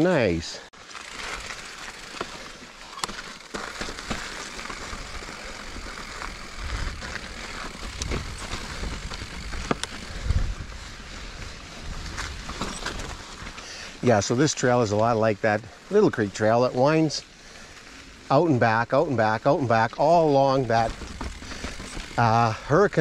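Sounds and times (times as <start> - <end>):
bike tyre hiss and rattle: 0.8 - 16.5, 20.7 - 23.0
bike clicks and knocks: 0.9 - 10.3, 12.1 - 13.6, 20.6 - 22.5.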